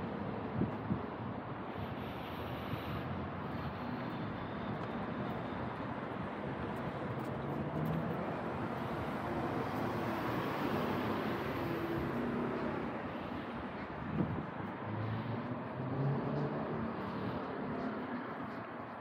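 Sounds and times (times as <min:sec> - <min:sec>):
street traffic noise: 0:00.0 - 0:19.0
car driving past: 0:14.8 - 0:18.6.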